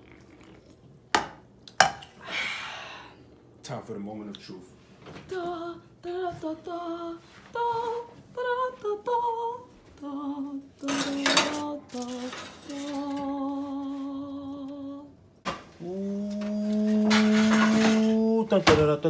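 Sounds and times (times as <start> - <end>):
person humming a drawn-out tune: 5.3 - 15.2, 15.8 - 18.6
oven rack and baking pan clatter: 10.8 - 13.4, 16.9 - 19.0.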